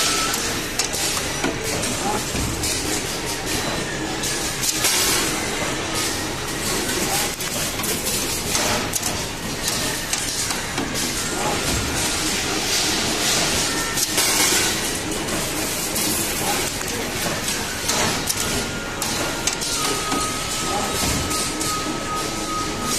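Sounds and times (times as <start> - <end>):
wire bending machine running: 0.0 - 22.9.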